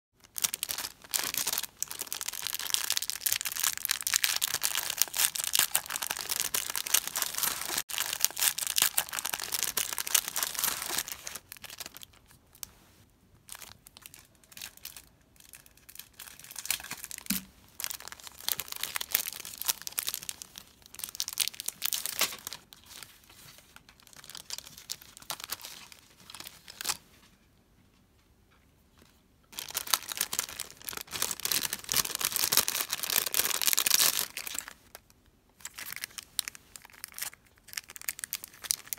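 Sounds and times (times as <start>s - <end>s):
plastic packaging crinkling: 0.2s - 12.7s, 13.4s - 27.0s, 29.5s - 38.9s.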